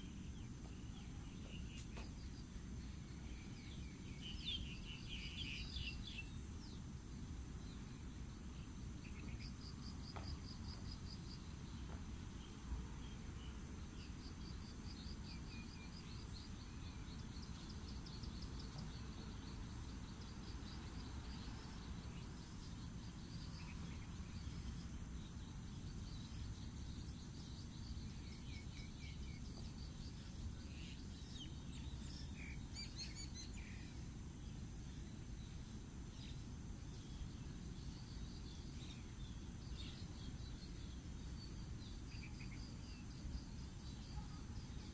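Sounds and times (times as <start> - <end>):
birds chirping: 0.0 - 6.9.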